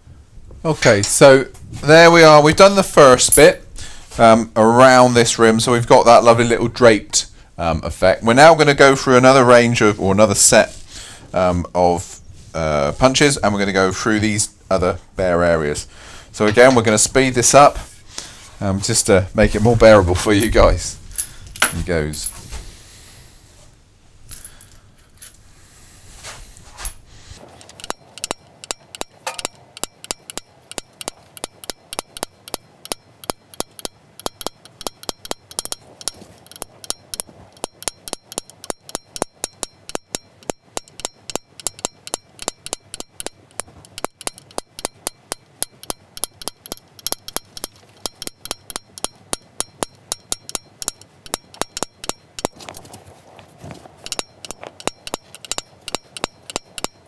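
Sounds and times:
hammer tapping metal punch: 27.6 - 52.8, 54.0 - 57.0.

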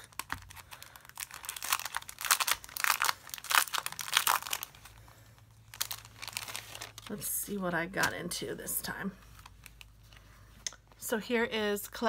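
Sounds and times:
cellophane crinkling: 0.0 - 8.3.

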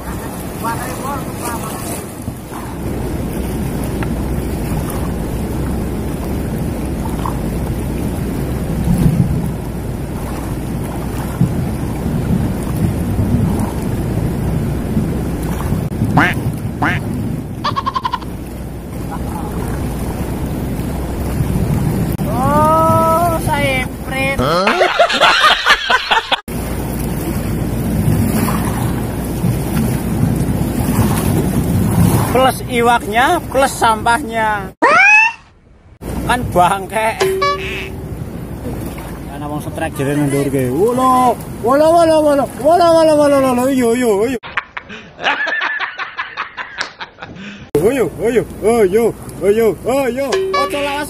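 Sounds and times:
wind rumble on microphone: 0.0 - 24.4, 26.5 - 33.6
river rushing in flood: 0.0 - 25.2, 26.4 - 34.8, 36.0 - 44.4, 47.7 - 51.0
rapid pitched laughter: 24.4 - 26.4.

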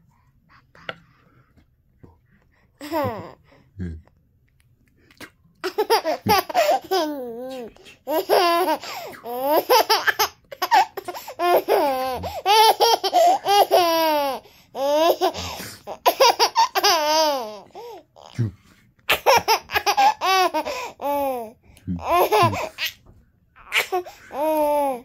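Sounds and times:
baby laughing: 2.8 - 3.4, 5.6 - 18.3, 19.1 - 23.0, 23.6 - 25.0.

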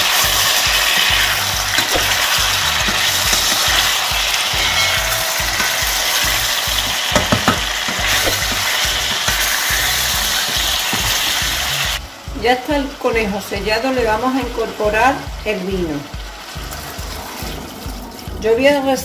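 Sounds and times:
meat and onion sizzling in oil: 0.0 - 19.0
wooden spatula stirring in pot: 0.1 - 11.8
spatula knocking against pot: 1.8 - 4.0, 4.6 - 11.4.

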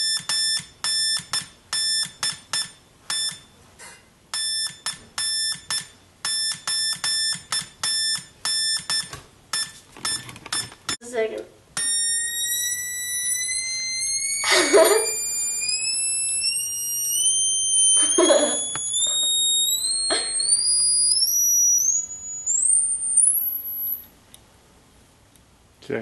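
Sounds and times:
high-pitched oscillator beep: 0.0 - 3.5, 4.3 - 10.7, 11.8 - 24.1
bursts of laughter: 14.4 - 15.2.

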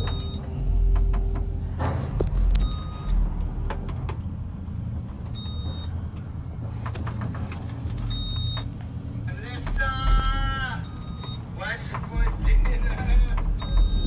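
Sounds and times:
elevator cab rumble: 0.0 - 14.0
knocks: 9.6 - 14.0.

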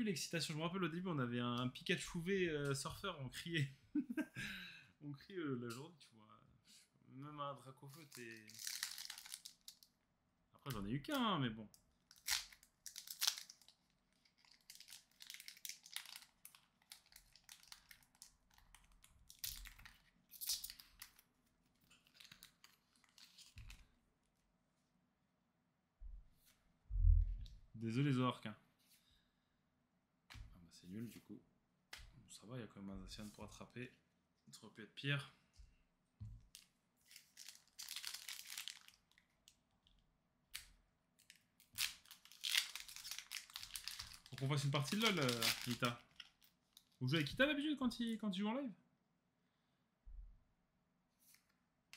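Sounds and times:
foil wrapper crinkling: 8.0 - 9.8, 12.1 - 21.3, 37.1 - 39.3, 41.3 - 47.0.

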